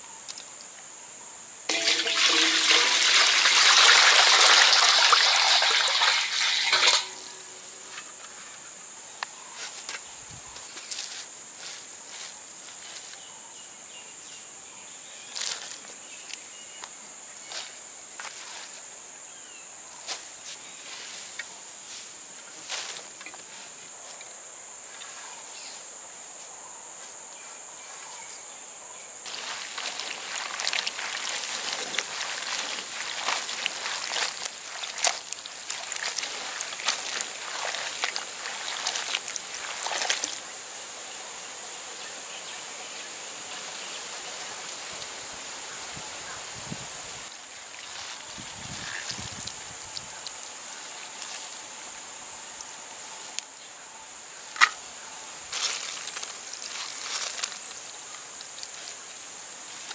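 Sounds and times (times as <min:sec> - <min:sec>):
high insect drone: 0:00.0 - 0:59.9
stems rustling and clicking: 0:01.7 - 0:08.6, 0:09.2 - 0:13.2, 0:29.2 - 0:40.5, 0:47.6 - 0:51.6, 0:55.5 - 0:59.9.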